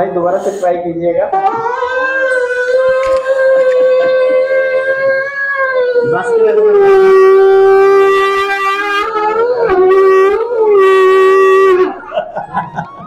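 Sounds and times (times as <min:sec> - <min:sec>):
conch shell blast: 0:06.8 - 0:12.0.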